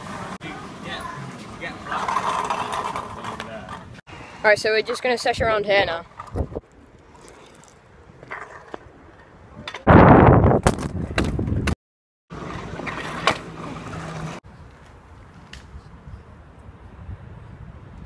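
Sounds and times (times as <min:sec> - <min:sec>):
scooter wheels rolling on tarmac: 0:00.0 - 0:09.9, 0:12.3 - 0:15.6.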